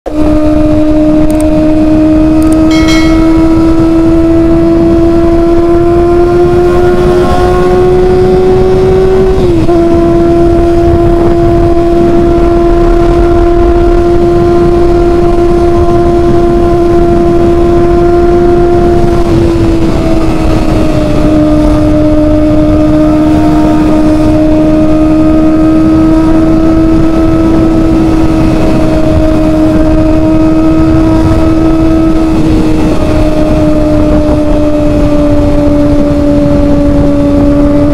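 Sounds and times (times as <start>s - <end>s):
motorcycle engine at high revs: 0.1s - 37.9s
road noise: 0.1s - 37.9s
wind noise: 0.1s - 37.9s.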